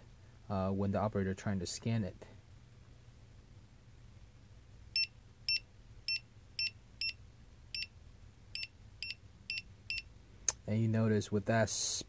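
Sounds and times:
barcode scanner beeping: 8.6 - 10.1.

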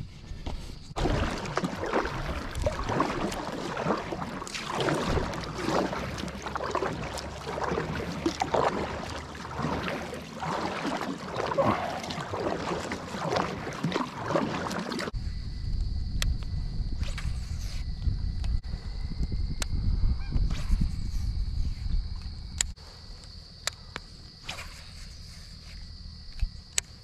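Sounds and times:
paddle strokes splashing: 0.9 - 15.2
water dripping off paddle: 1.0 - 15.1.

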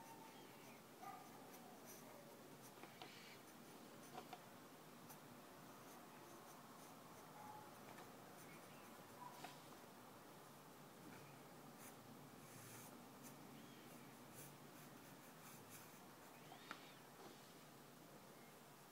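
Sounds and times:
pencil scratching on paper: 0.3 - 4.4, 5.1 - 9.6, 11.8 - 17.0.

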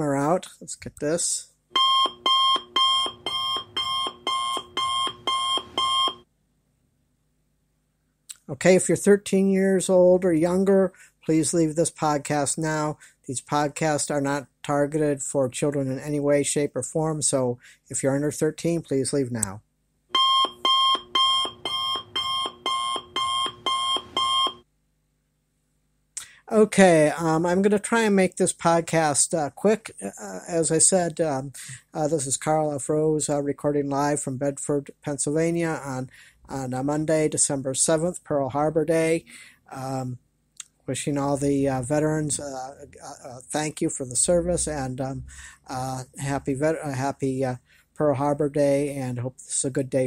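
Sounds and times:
electronic alarm beeping: 1.7 - 6.3, 20.1 - 24.7.

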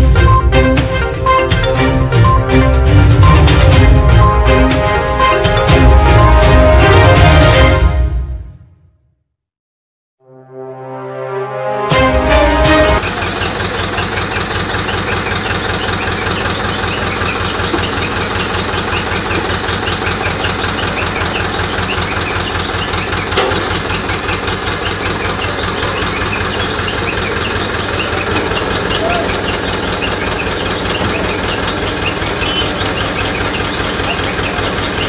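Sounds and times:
music jingle: 0.0 - 7.9, 16.4 - 35.0
engine idling with low throb: 12.0 - 35.0.

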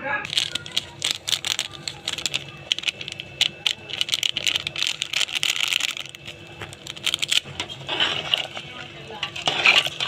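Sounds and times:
plastic packet crinkling: 0.3 - 7.5.

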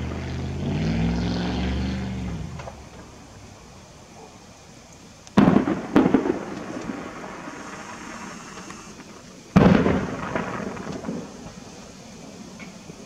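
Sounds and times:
firework shells booming: 5.3 - 13.0.

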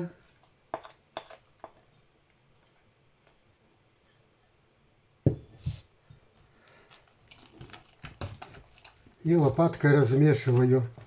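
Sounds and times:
kitchenware knocking on wooden board: 5.3 - 5.5.

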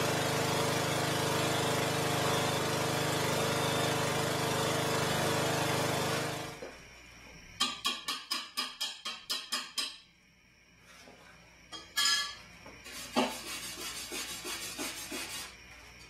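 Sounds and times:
sharp metal taps: 7.6 - 10.1.

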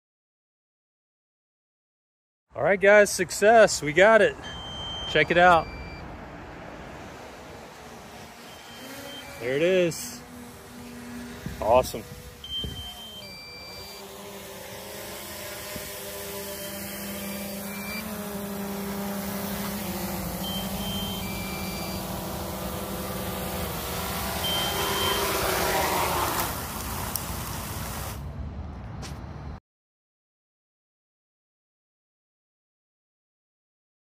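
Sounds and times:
short electronic beeps: 4.4 - 6.1, 8.4 - 9.6, 12.4 - 14.1, 16.5 - 18.1, 20.4 - 22.2, 24.4 - 25.4
drone propellers whirring: 4.4 - 28.4.

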